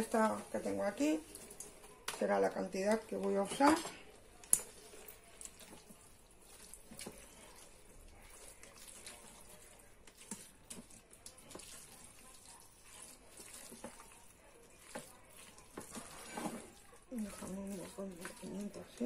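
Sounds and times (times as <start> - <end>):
spatula stirring pasta in sauce: 0.0 - 19.0.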